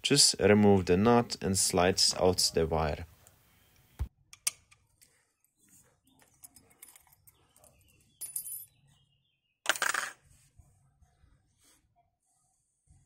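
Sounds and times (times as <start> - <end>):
small metallic clicks and clinks: 6.2 - 8.8.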